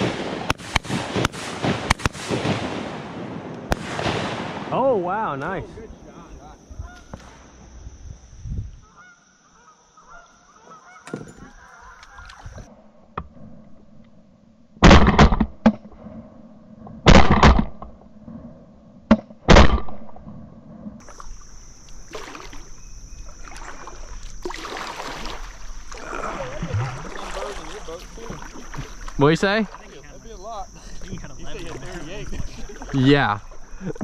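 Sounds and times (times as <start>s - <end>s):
shotgun shots: 0.0s - 4.8s, 14.8s - 15.7s, 17.1s - 17.8s, 19.1s - 20.0s
geese honking: 6.8s - 7.2s, 8.8s - 12.5s.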